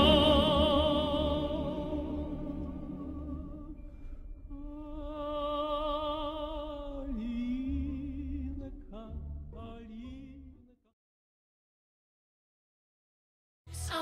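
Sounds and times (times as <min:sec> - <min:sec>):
operatic singing with vibrato: 0:00.0 - 0:10.6.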